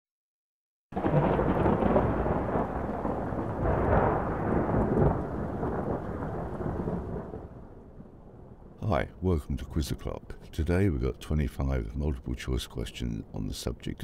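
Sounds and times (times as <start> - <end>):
deep rumble with crackle: 1.0 - 8.8.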